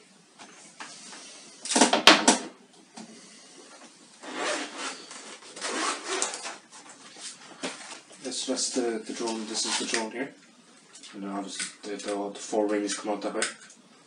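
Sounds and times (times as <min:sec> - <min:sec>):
case rasping and rustling: 0:04.2 - 0:08.1.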